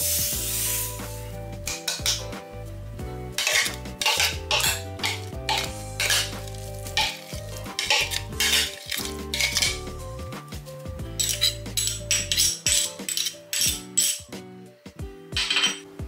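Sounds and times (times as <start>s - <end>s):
background music: 0.0s - 16.0s
utensil scraping in a bowl: 3.4s - 9.8s, 11.2s - 14.2s.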